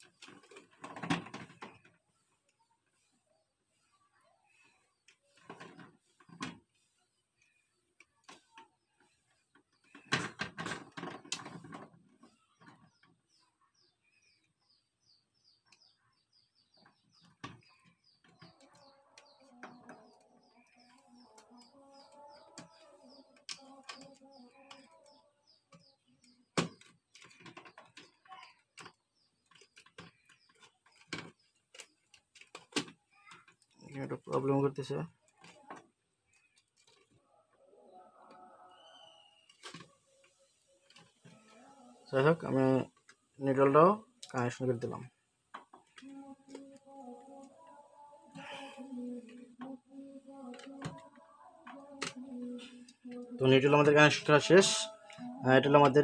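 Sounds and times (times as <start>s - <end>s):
wire handling clicks and taps: 16.8s - 37.2s, 45.5s - 53.4s.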